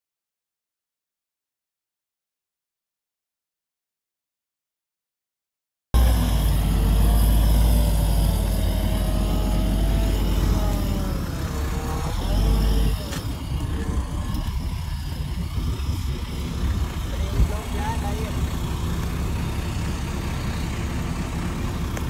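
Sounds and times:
diesel machinery rumbling: 0:06.0 - 0:22.0.

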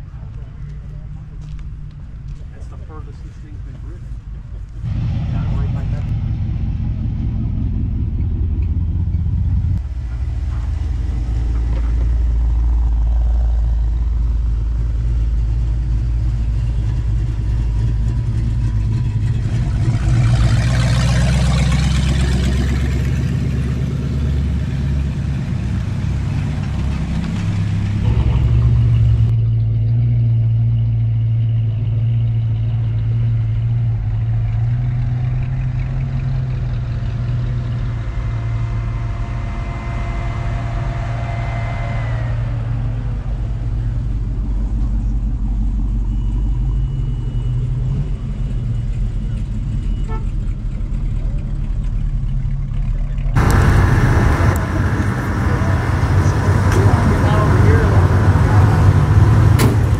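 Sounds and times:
car engines running low: 0:00.0 - 0:59.9
loud rushing noise: 0:04.8 - 0:15.0, 0:37.9 - 0:44.4, 0:53.4 - 0:59.9.

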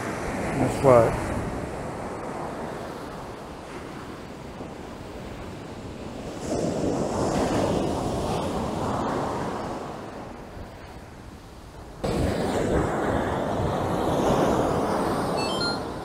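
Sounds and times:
waves washing on a beach: 0:00.0 - 0:16.0.

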